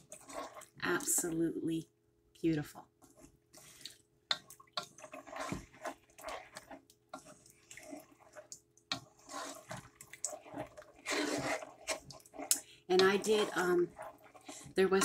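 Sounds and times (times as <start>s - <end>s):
sauce sloshing in a pot: 0.0s - 1.3s, 2.9s - 15.0s
spoon scraping pot bottom: 4.8s - 15.0s.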